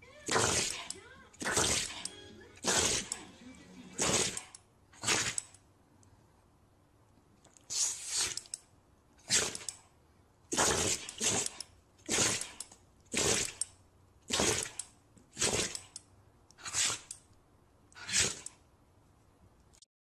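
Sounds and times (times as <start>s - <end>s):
dog sneezing: 5.0s - 5.4s, 9.3s - 9.6s, 16.6s - 17.1s.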